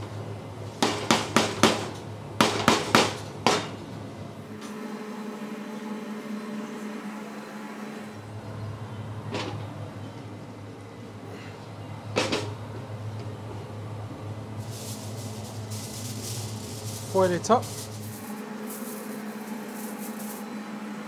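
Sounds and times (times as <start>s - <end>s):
kitchen hum: 8.1s - 21.0s.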